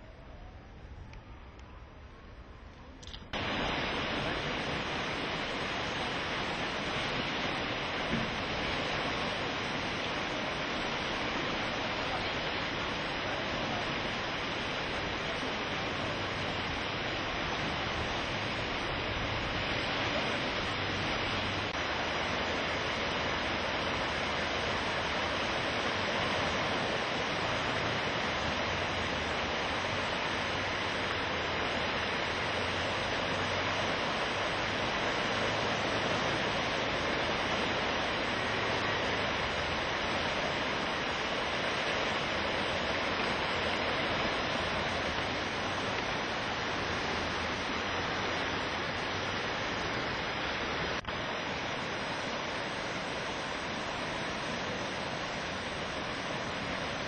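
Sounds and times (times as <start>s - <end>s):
river rushing: 3.0s - 57.0s.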